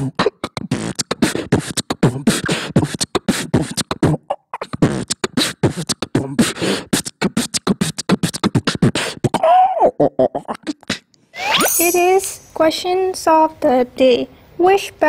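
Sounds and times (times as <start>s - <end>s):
person beatboxing into microphone: 0.0s - 12.0s.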